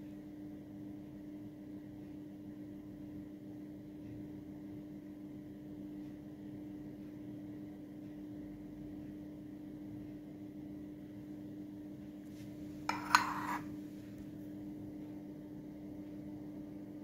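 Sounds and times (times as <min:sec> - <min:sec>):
steady low hum: 0:00.0 - 0:17.0
ceramic scraping on stone: 0:12.4 - 0:13.8
ceramic clink: 0:12.8 - 0:13.7.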